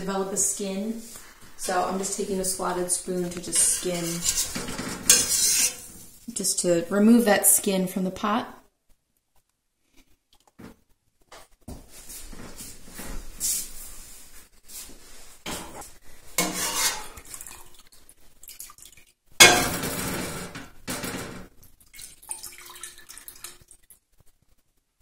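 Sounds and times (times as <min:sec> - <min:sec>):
metal spoon scraping a pot: 0:03.3 - 0:06.0, 0:16.4 - 0:17.3
loud metal clatter: 0:19.4 - 0:21.4.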